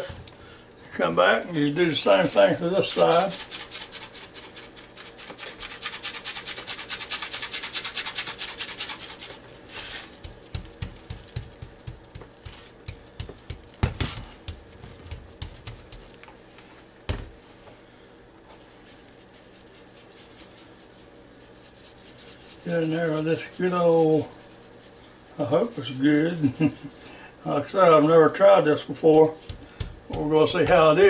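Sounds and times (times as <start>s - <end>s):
seasoning rattling in shaker jar: 1.7s - 13.7s, 18.9s - 27.5s, 29.0s - 30.9s
hand slapping meat: 10.1s - 16.2s, 29.4s - 31.0s.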